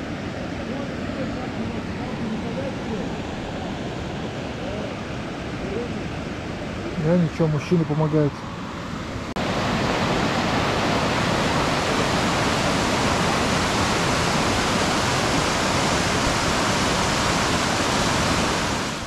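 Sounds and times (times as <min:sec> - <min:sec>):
waterfall rushing: 0:09.2 - 0:19.0.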